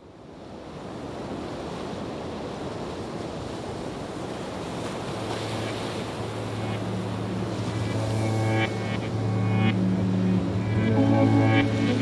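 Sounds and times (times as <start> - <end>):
waterfall rushing: 5.6 - 12.0
low steady tone: 6.1 - 12.0.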